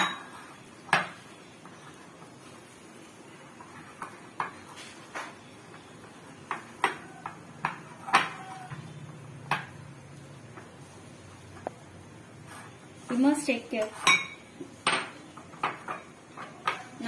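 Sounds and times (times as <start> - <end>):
glass bowl clinking and knocking: 0.0 - 0.4, 14.0 - 16.9.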